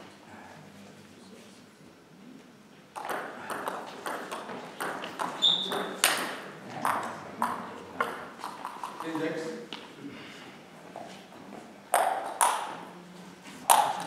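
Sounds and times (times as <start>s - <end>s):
table tennis ball clicking: 3.0s - 9.2s, 12.0s - 12.8s, 13.7s - 14.0s
high squeak: 5.4s - 5.9s.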